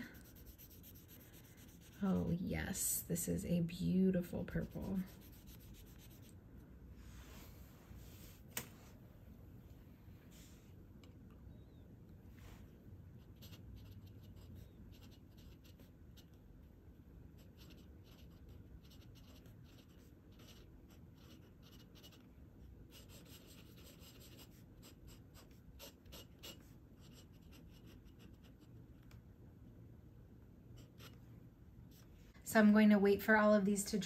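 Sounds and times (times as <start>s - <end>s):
pen nib scratching paper: 0.0s - 2.0s, 4.5s - 6.3s, 13.2s - 16.4s, 17.4s - 22.3s, 22.9s - 28.7s.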